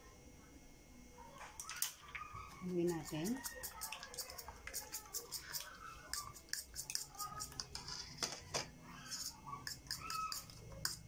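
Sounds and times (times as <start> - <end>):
fork clicking against bowl: 2.6 - 7.7, 9.1 - 11.0.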